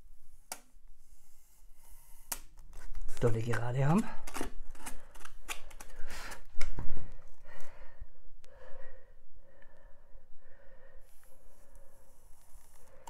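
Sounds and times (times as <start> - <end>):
hot wire cutting foam: 1.3 - 6.0.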